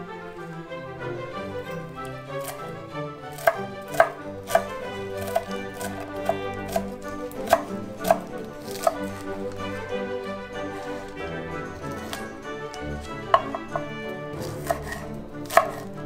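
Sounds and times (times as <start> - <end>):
knife chopping on wooden board: 1.9 - 9.8, 11.8 - 16.0.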